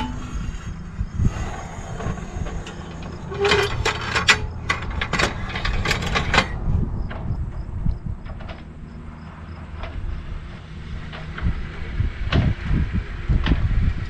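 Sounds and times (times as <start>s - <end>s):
metal anchor clanking on rail: 0.0s - 7.3s
low steady rumble: 0.0s - 14.0s.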